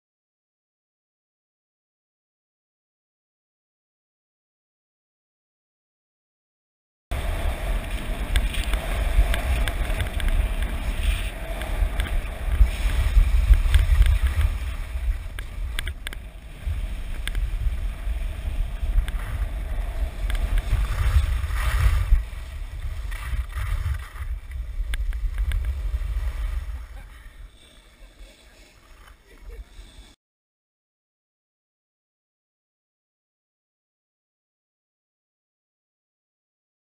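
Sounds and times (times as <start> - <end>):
wind buffeting microphone: 7.1 - 27.5
skis scraping on packed snow: 7.1 - 30.2.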